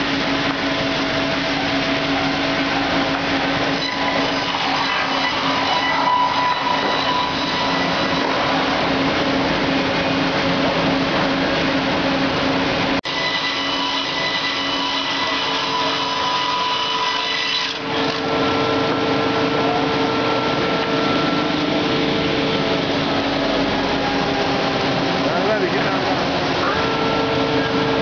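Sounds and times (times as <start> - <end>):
lumber edger machine running: 0.0 - 28.0.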